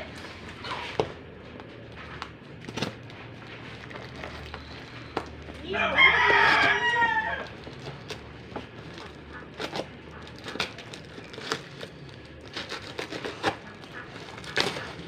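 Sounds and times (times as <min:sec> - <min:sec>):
rooster crowing: 0:05.6 - 0:07.6
knife cutting packing tape: 0:07.6 - 0:15.0.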